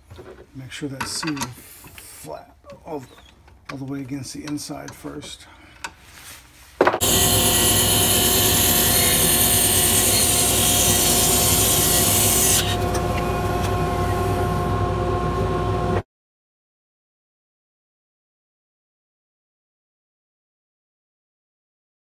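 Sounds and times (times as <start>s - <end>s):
hiss of tool cutting wood: 7.0s - 12.8s
lathe motor hum: 7.0s - 16.0s.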